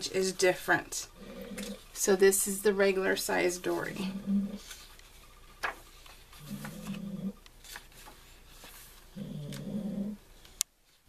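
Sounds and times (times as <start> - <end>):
paper pages turning: 4.6 - 9.2.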